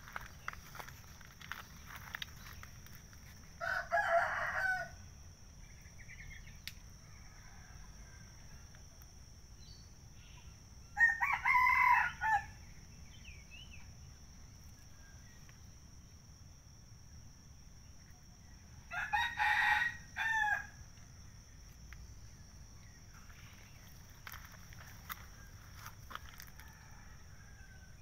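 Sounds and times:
rooster crowing: 0:03.6 - 0:05.0, 0:11.0 - 0:12.6, 0:18.8 - 0:20.8, 0:26.1 - 0:28.0.

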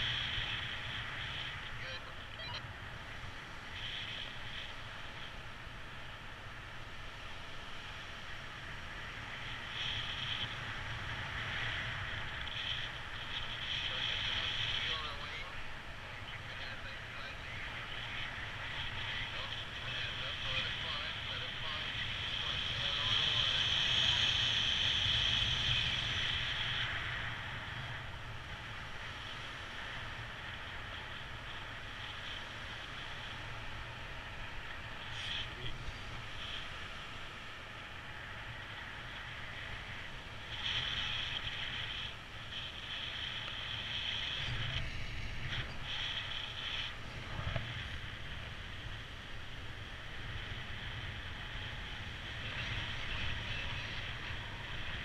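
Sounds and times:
wind hiss on microphone: 0:00.0 - 0:55.0.

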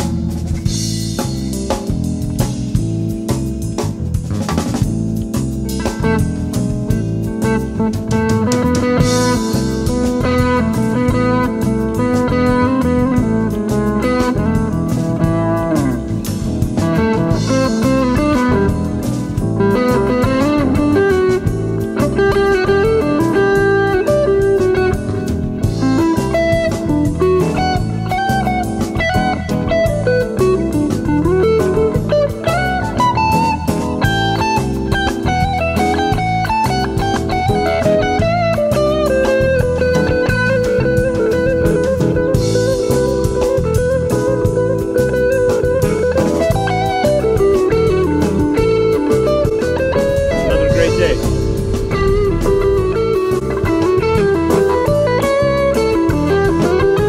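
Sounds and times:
instrumental band music: 0:00.0 - 0:57.0
lead guitar bending notes: 0:49.6 - 0:54.5.

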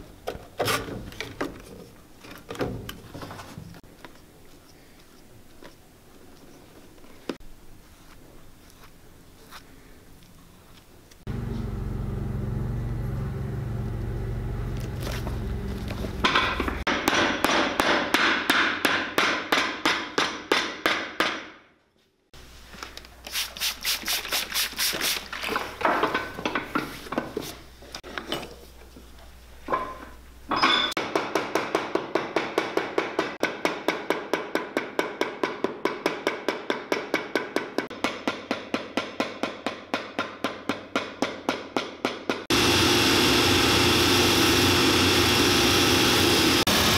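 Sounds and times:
low machine hum: 0:11.3 - 0:16.8.

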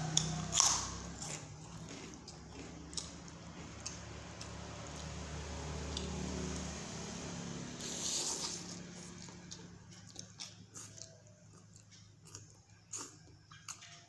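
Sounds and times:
wet chewing: 0:00.0 - 0:06.7, 0:07.8 - 0:14.0
loud slurp of noodles: 0:07.8 - 0:08.8.

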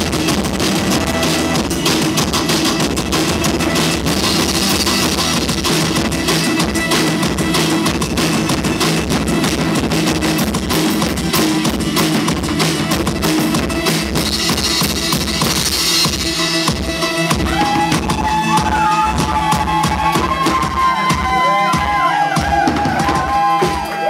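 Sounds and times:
live band playing loud music: 0:00.0 - 0:24.0
rapid drum hits: 0:00.0 - 0:24.0.

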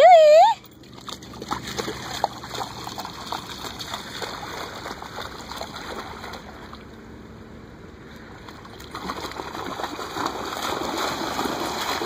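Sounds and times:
dog splashing through water: 0:00.8 - 0:06.9, 0:08.4 - 0:12.0.

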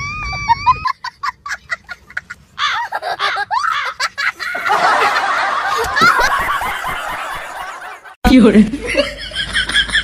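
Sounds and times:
person laughing: 0:00.0 - 0:07.8.

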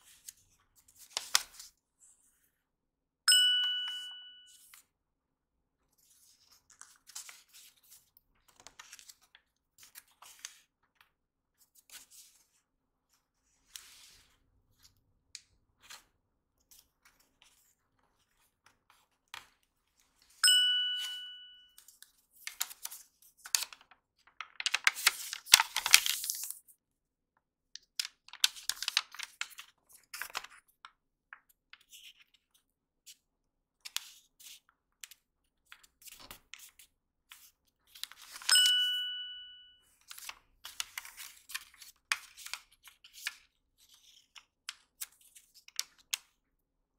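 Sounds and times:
paper rustling and creasing: 0:00.0 - 0:02.5, 0:05.9 - 0:11.0, 0:11.6 - 0:15.0, 0:21.8 - 0:26.7, 0:28.3 - 0:32.6, 0:33.9 - 0:38.5
chime-like ding: 0:03.3 - 0:04.7, 0:20.4 - 0:21.7, 0:38.5 - 0:39.8.

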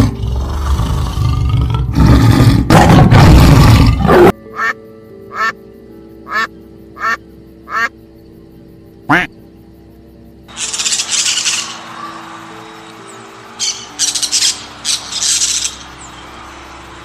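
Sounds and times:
tiger roaring: 0:00.0 - 0:04.3
soft background music: 0:00.0 - 0:17.0.

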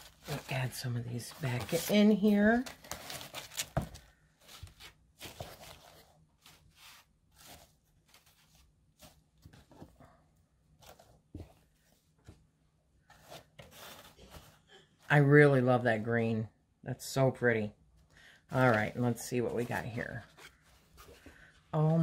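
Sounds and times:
paper shred rustling: 0:00.0 - 0:09.2.

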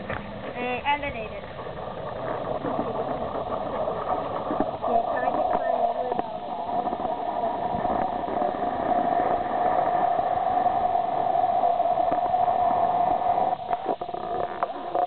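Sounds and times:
faint clicks: 0:12.0 - 0:15.0.

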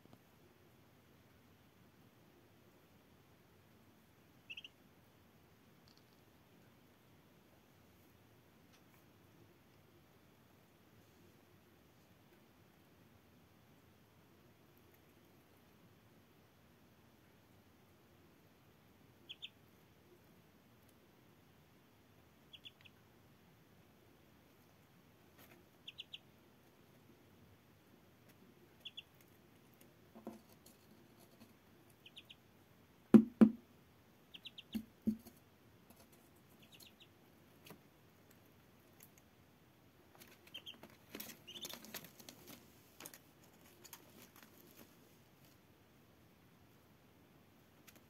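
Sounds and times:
ducklings peeping: 0:04.4 - 0:04.8, 0:19.2 - 0:19.6, 0:22.4 - 0:23.0, 0:25.4 - 0:26.3, 0:28.7 - 0:29.4, 0:31.9 - 0:32.5, 0:34.3 - 0:35.2, 0:36.5 - 0:37.7, 0:40.2 - 0:42.3
dull thumps: 0:33.2 - 0:33.6.

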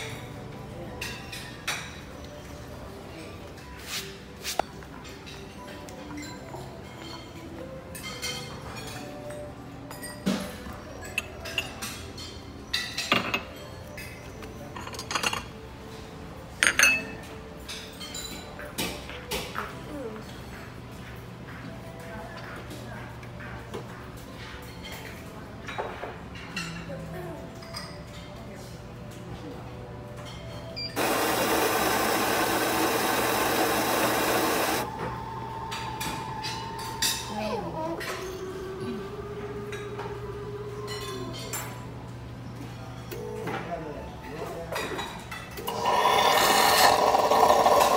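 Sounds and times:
coffee machine grinding: 0:31.0 - 0:35.0, 0:45.7 - 0:47.9
coffee machine humming: 0:31.0 - 0:37.0, 0:45.6 - 0:47.9.

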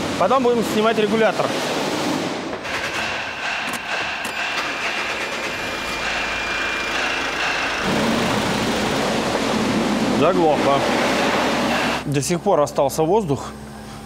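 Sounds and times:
diesel engine running: 0:03.4 - 0:12.1.

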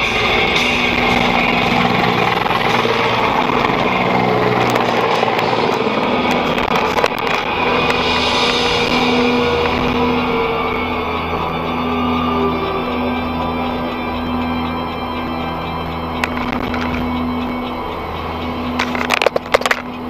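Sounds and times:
loud background music: 0:00.0 - 0:20.0.

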